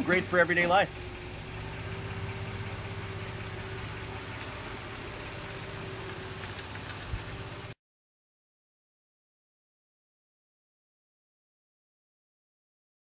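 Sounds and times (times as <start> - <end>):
truck engine running: 0.0 - 7.8.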